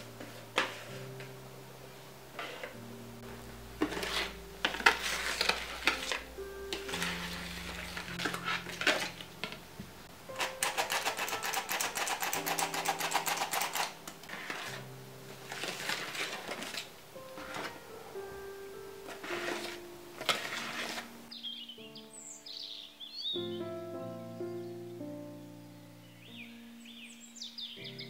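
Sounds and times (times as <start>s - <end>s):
soft background music: 0.0s - 28.0s
whisk beating batter in bowl: 10.4s - 14.8s.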